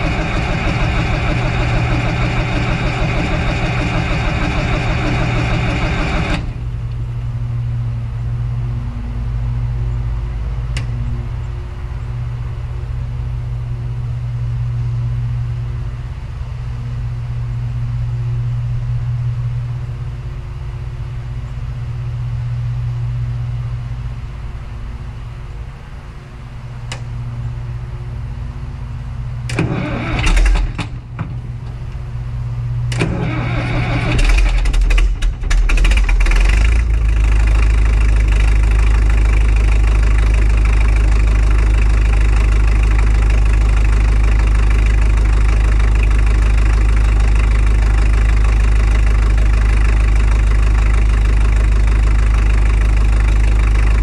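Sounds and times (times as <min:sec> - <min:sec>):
loud noisy bursts: 0:00.0 - 0:06.9, 0:29.5 - 0:31.7, 0:32.8 - 0:54.0
engine running steadily: 0:00.0 - 0:54.0
rough loud engine: 0:00.0 - 0:54.0.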